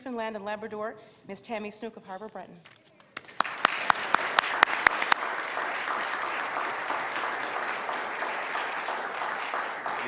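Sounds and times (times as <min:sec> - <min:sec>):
close loud claps: 0:03.0 - 0:10.0
crowd applauding: 0:03.2 - 0:10.0.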